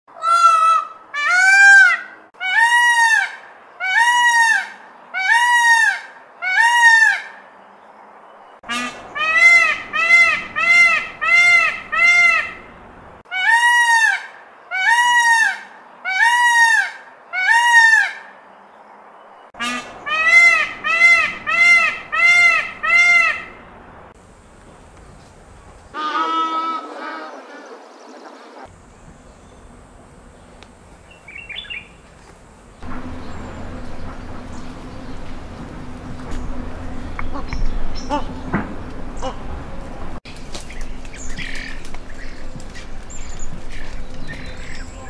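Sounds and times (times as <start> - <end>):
peacock honking calls: 0.1 - 7.4, 8.6 - 12.7, 13.3 - 18.3, 19.6 - 23.6, 25.9 - 27.8, 32.8 - 39.8.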